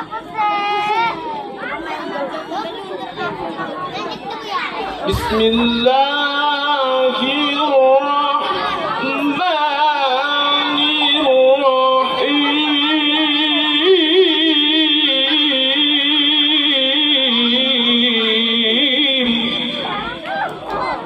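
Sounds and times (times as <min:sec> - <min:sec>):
man reciting melodically through microphone: 0:05.0 - 0:20.0.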